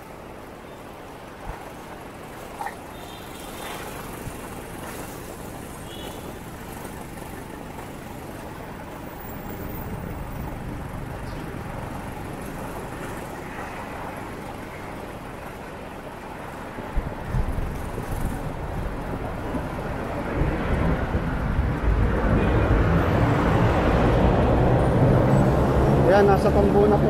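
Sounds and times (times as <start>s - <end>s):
motorcycle engine rumble: 0.0s - 23.2s.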